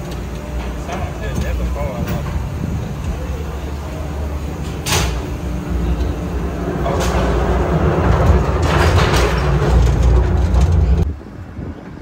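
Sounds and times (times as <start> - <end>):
cable car rumbling and clattering: 0.0 - 12.0.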